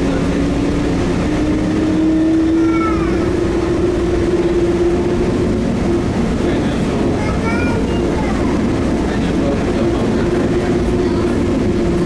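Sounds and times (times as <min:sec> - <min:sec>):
train running noise: 0:00.0 - 0:12.0.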